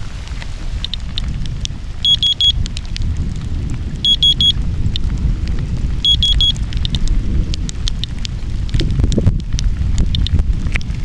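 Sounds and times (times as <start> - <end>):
rain and wind rumble: 0.0 - 11.0
quick high beeps: 2.0 - 2.6, 4.0 - 4.6, 6.0 - 6.6
geiger counter clicking: 2.0 - 2.8, 4.0 - 5.1, 6.0 - 8.3, 9.6 - 10.4.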